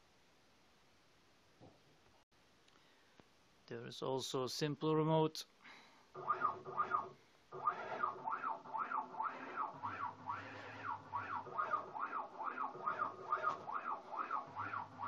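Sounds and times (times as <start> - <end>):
stepper motors whining: 6.2 - 15.0.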